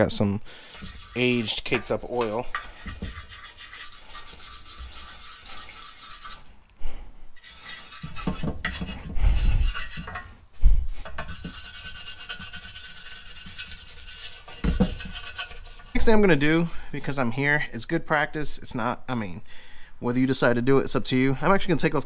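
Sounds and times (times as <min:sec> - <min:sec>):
toothbrush scrubbing metal pan: 0:00.6 - 0:06.5, 0:07.4 - 0:10.3, 0:11.1 - 0:16.2.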